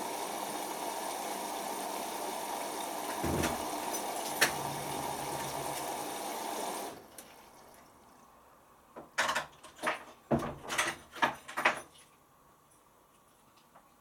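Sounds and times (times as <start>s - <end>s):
washing machine running: 0.0s - 7.8s
drum knocks and sloshes: 3.2s - 3.9s.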